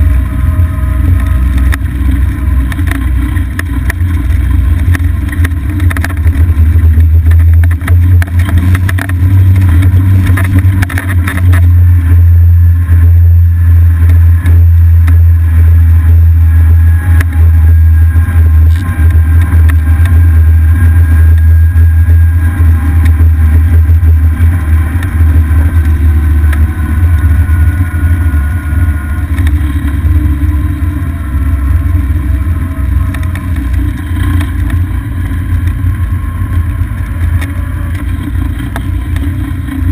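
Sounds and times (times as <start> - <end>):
faint whine: 0.0 - 39.9
golf cart engine and road rumble: 0.0 - 39.9
rattles: 0.0 - 39.9.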